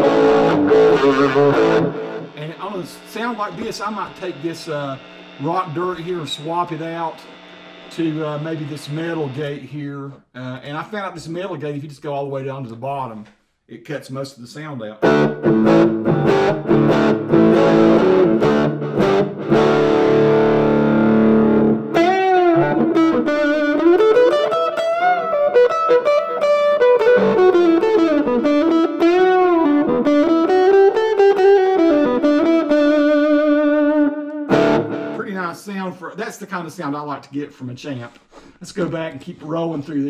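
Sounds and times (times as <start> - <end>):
distorted electric guitar playing: 0.0 - 9.8, 15.0 - 35.6.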